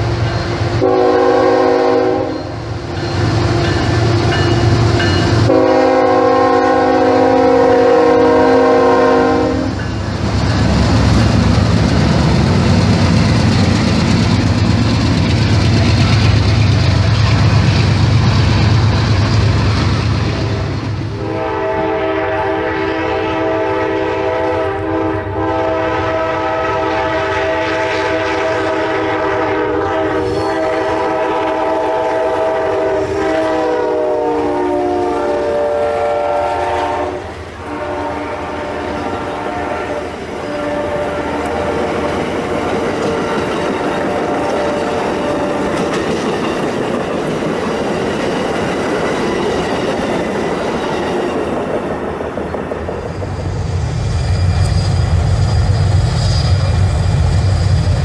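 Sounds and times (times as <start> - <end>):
freight train passing: 0.0 - 58.0
train air horn blasts: 0.7 - 2.7, 4.4 - 9.8, 20.4 - 46.0
train horn long chord: 0.8 - 2.6, 4.4 - 9.8, 20.5 - 43.5, 44.1 - 45.9.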